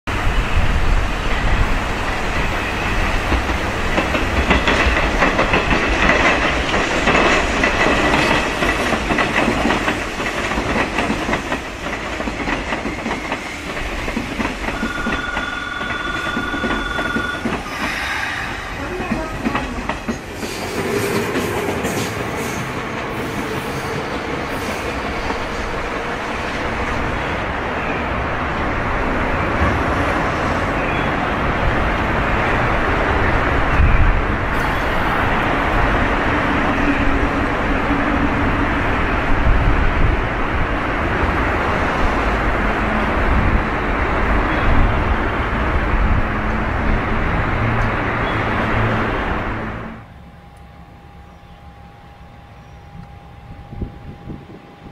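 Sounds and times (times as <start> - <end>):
electric train running with faint hum: 0.1 - 54.9
train wheels clattering over rail joints: 3.0 - 18.1.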